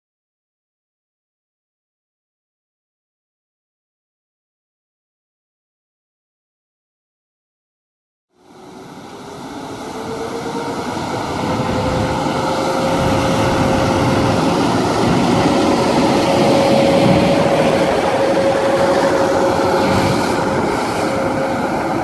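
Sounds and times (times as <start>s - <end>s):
electric locomotive whine: 8.3s - 22.0s
wheels rumbling on rail: 8.4s - 22.0s.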